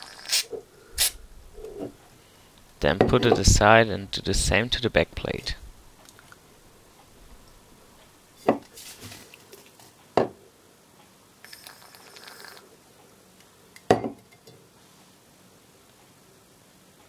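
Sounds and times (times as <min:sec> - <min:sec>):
aerosol can spraying hiss: 0:00.2 - 0:01.2.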